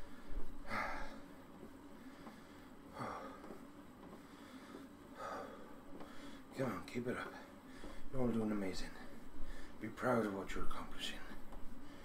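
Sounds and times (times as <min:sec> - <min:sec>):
man breathing hard: 0:00.0 - 0:01.4, 0:02.0 - 0:06.5, 0:07.4 - 0:08.2, 0:09.0 - 0:09.8.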